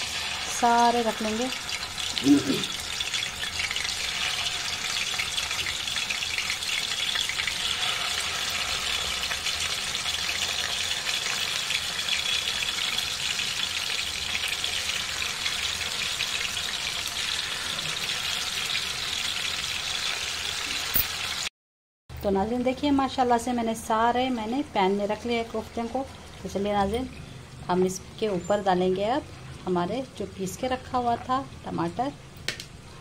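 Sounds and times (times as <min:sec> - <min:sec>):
hot oil sizzling in a pan: 0:00.0 - 0:21.5.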